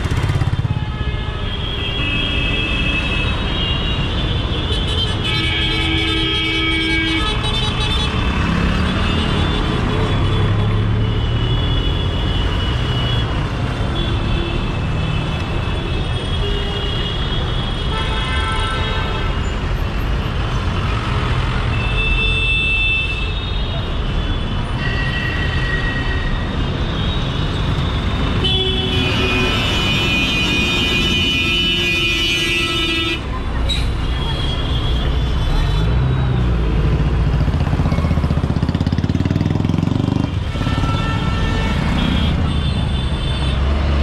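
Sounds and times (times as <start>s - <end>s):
traffic rumble: 0.0s - 18.1s, 19.0s - 44.0s
car horns honking: 27.0s - 33.3s, 40.2s - 43.8s.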